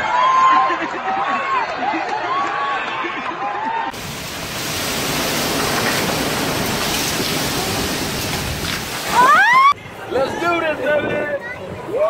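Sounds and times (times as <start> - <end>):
heavy wind-driven rain: 3.9 - 12.0.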